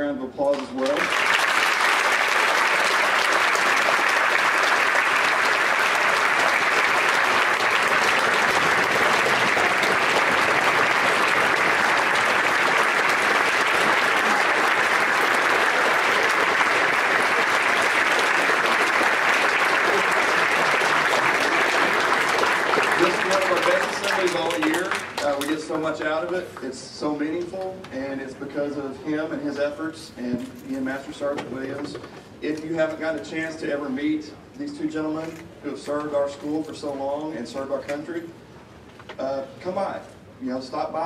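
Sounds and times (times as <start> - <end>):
audience applause: 0.8 - 25.8.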